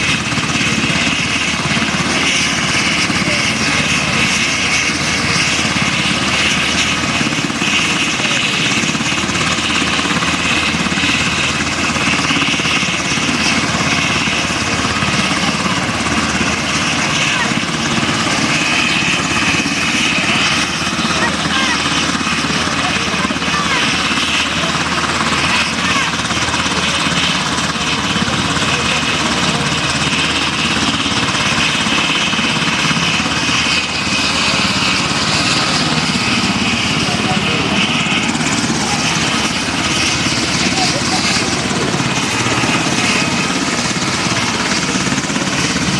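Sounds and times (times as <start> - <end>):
helicopter turbine whine: 0.0 - 45.9
rotor blades beating: 0.0 - 45.9.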